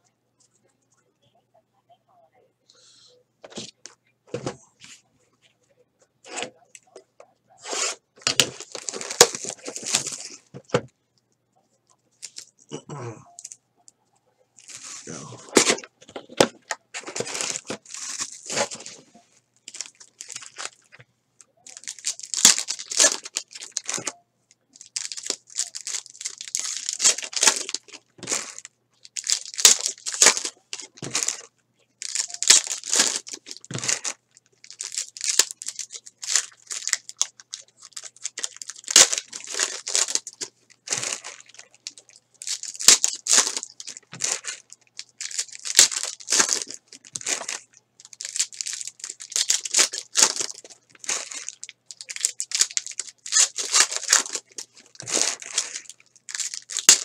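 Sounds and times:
foil wrappers tearing and crinkling: 0:07.6 - 0:10.4, 0:17.0 - 0:19.0, 0:19.7 - 0:20.9, 0:21.6 - 0:24.1, 0:24.8 - 0:57.0.

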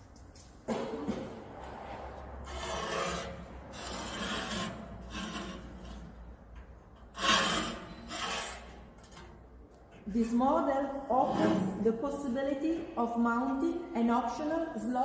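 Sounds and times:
metal square scraping on steel table: 0:01.9 - 0:09.4.

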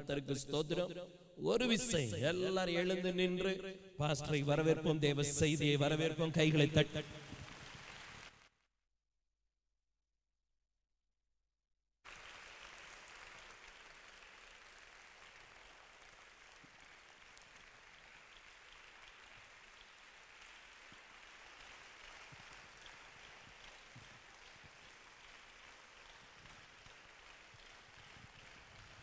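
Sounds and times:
faint applause: 0:06.8 - 0:08.5, 0:12.1 - 0:29.0.

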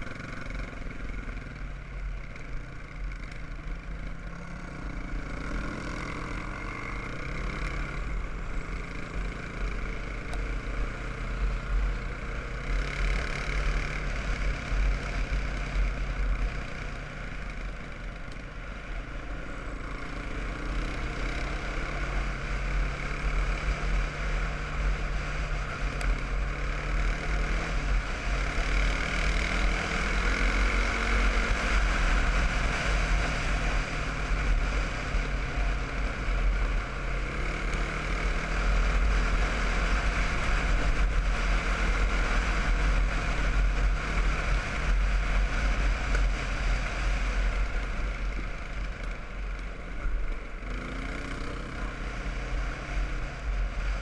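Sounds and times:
quad bike engine running: 0:00.0 - 0:54.0.

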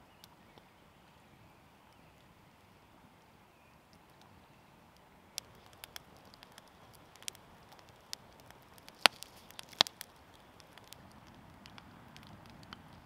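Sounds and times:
wood fire crackling: 0:00.2 - 0:13.0
sharp pops of fire: 0:05.3 - 0:13.0.

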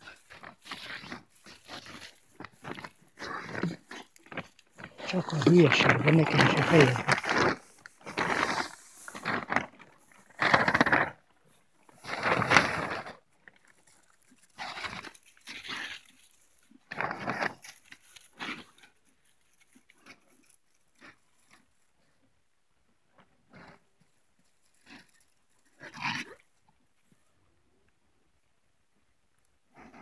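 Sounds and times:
pig grunting: 0:00.0 - 0:11.2.

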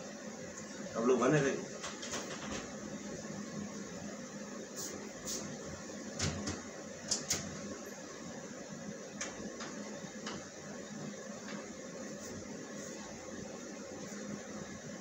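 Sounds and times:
electric fan humming: 0:00.0 - 0:15.0
cabinet door clicks and knocks: 0:06.2 - 0:06.6.

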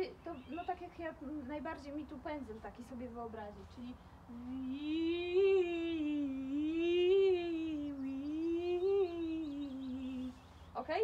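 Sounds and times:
woman singing vocal glide: 0:04.3 - 0:10.5.

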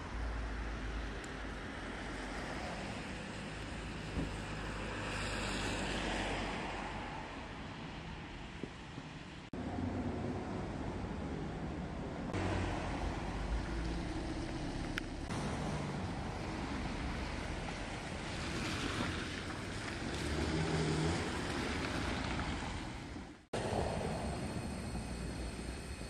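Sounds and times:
rushing outdoor noise: 0:00.0 - 0:26.0
low rumble: 0:23.6 - 0:26.0.

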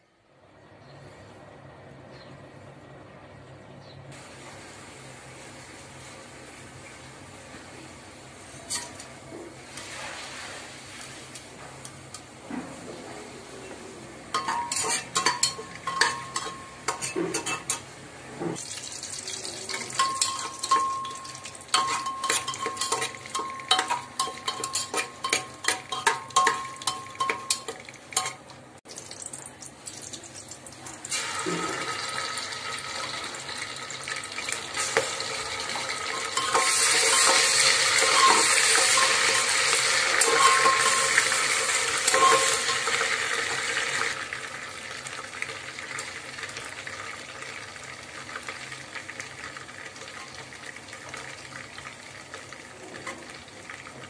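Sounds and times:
frying sizzle: 0:04.1 - 0:54.0
metal spoon scraping pot: 0:14.4 - 0:17.9, 0:19.7 - 0:28.4, 0:36.1 - 0:43.0.

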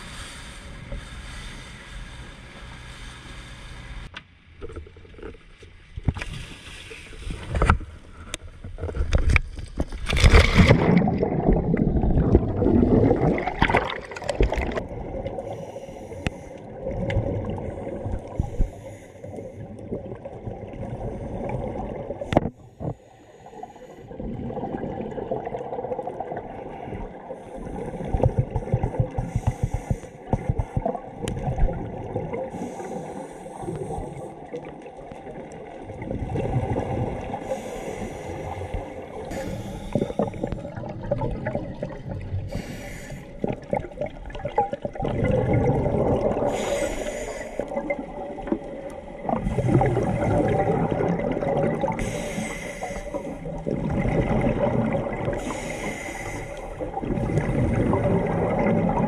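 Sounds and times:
underwater rumble and gurgling: 0:00.0 - 0:59.0
scuba exhaust bubbles: 0:07.2 - 0:59.0
splash into water: 0:10.0 - 0:14.8.

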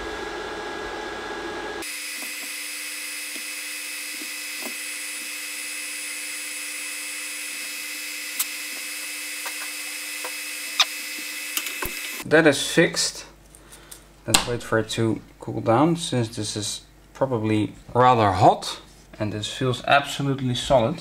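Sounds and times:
small motor humming: 0:01.8 - 0:12.2.

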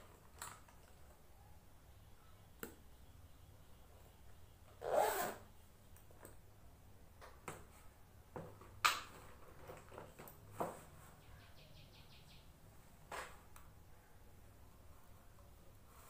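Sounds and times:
objects handled and set down: 0:07.2 - 0:11.0.

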